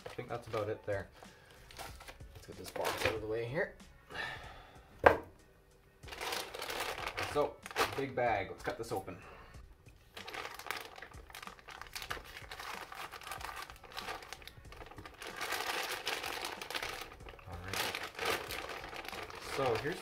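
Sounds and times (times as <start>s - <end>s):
plastic bag crinkling: 6.1s - 8.2s, 10.1s - 20.0s.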